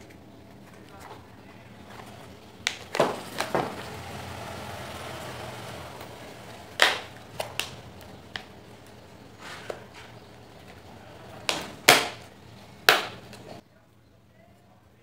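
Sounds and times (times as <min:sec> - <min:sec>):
plastic parts knocking together: 0:02.7 - 0:03.8.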